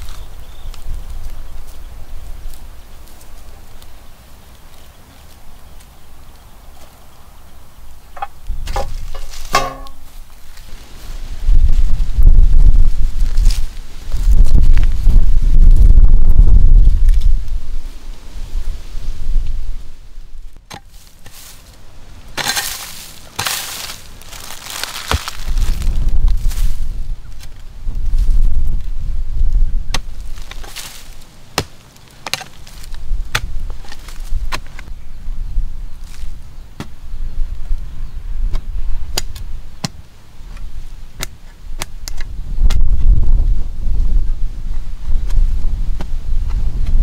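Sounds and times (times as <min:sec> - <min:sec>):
blade scraping dry soil: 0:00.0 - 0:07.0, 0:08.2 - 0:19.7, 0:20.4 - 0:35.1, 0:35.9 - 0:47.0
wind buffeting microphone: 0:00.0 - 0:20.6, 0:23.8 - 0:31.2, 0:40.5 - 0:47.0
metal blade chopping into soil: 0:08.6 - 0:10.1, 0:22.4 - 0:24.0
sharp metal knock: 0:09.5 - 0:10.0.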